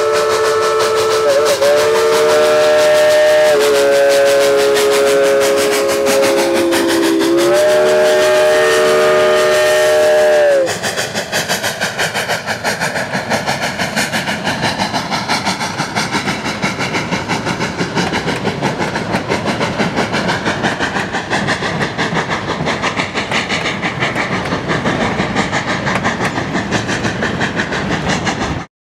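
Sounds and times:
steam locomotive chime whistle: 0.0 - 10.8
train wheels clacking on rail joints: 0.0 - 28.7.

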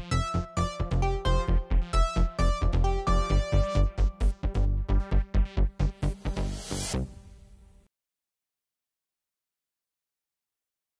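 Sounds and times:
electronic music with fast beat: 0.0 - 7.1.

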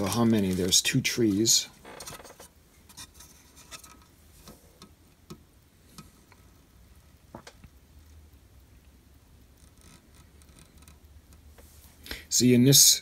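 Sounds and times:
plastic parts clicking and rubbing: 0.0 - 6.5, 9.6 - 11.6
low steady hum: 0.0 - 13.0.

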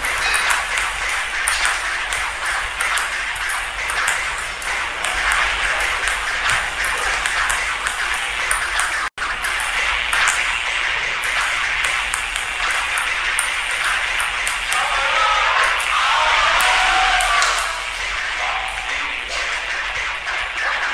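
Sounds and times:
table tennis ball clicks: 0.0 - 14.8.

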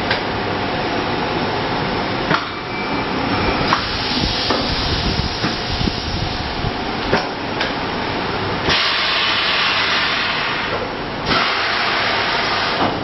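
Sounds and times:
loud hiss: 3.7 - 6.6, 8.6 - 10.7
welding machine running: 8.6 - 12.9.

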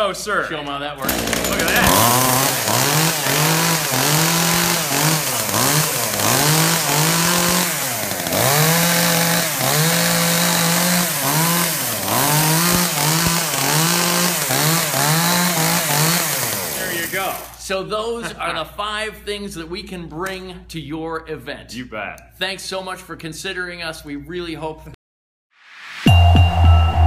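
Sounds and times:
chainsaw engine revving: 1.0 - 17.6.

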